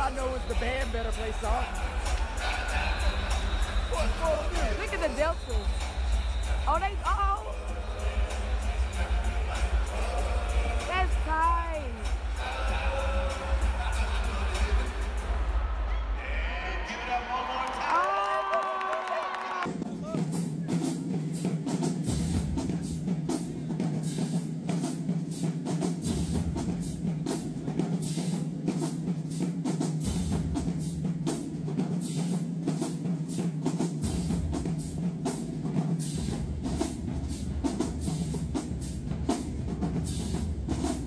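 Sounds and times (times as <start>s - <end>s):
live band playing: 0.0s - 8.4s
drums and cymbals: 0.0s - 17.2s, 19.6s - 41.0s.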